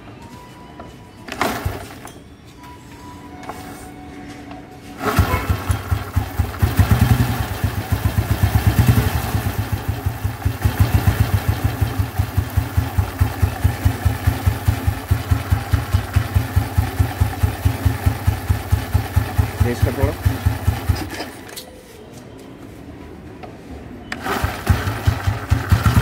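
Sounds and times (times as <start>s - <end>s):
motorcycle engine starting and revving: 1.3s - 2.1s, 5.0s - 21.6s, 24.1s - 26.0s
engine idling with thumping beat: 5.0s - 21.3s, 24.2s - 26.0s.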